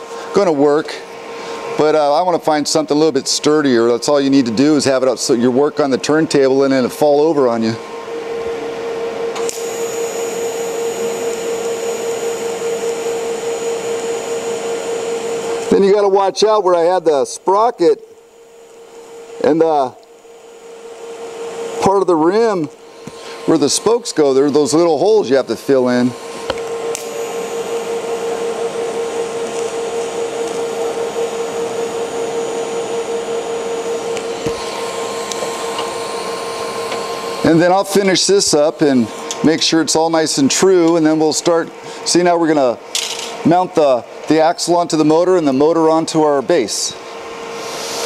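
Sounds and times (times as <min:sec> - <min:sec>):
welding arc hissing and humming: 0:09.3 - 0:48.0
welding arc hissing: 0:09.4 - 0:14.8, 0:47.6 - 0:48.0.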